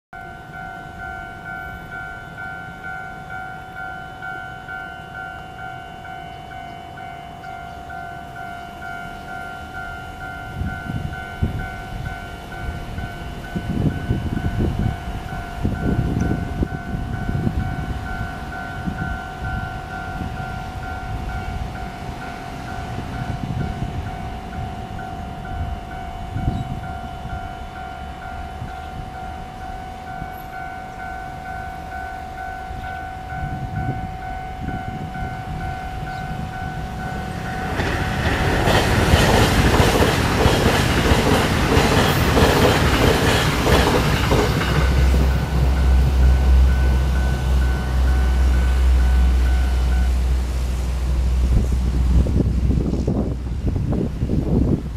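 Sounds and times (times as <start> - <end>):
level crossing warning bell: 0.2 - 51.6
electric train passing: 0.2 - 54.9
wheels clattering over rail joints: 36.8 - 48.9
low rumble: 43.2 - 54.9.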